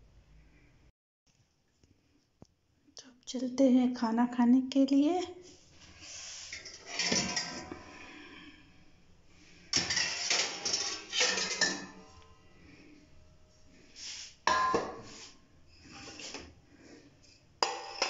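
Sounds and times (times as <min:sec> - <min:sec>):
metal plates and utensils clattering: 0:06.5 - 0:08.2, 0:09.7 - 0:12.4, 0:14.5 - 0:15.3
sharp metallic clang: 0:14.5 - 0:15.2.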